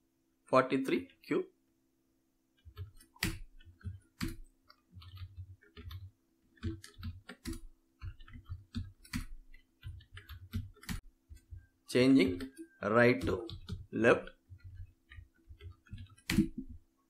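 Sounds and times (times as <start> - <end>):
keyboard keystrokes clicking: 2.6 - 11.6, 12.2 - 16.8.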